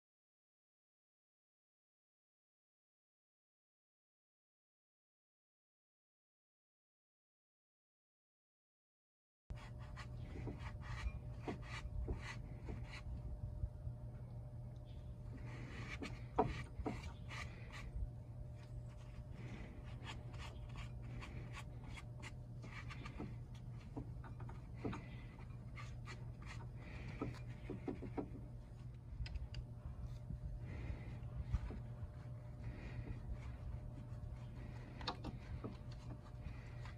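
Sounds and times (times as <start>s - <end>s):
low steady hum: 9.5s - 36.9s
paper towel rubbing on metal: 15.4s - 17.9s, 31.6s - 36.9s.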